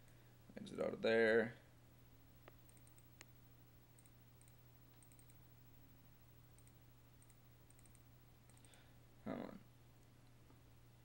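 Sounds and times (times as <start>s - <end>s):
faint low hum: 0.0s - 11.0s
faint high ticks: 2.4s - 3.3s, 4.0s - 5.4s, 6.5s - 8.8s
computer mouse clicks: 2.4s - 3.4s, 4.0s - 5.5s, 6.5s - 8.8s.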